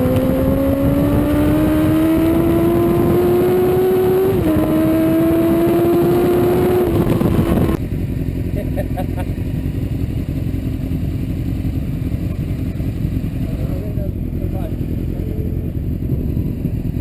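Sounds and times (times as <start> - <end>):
heavy wind noise: 0.0 - 7.8, 14.4 - 17.0
motorcycle engine at high revs: 0.0 - 17.0
motorcycle idling: 7.8 - 17.0.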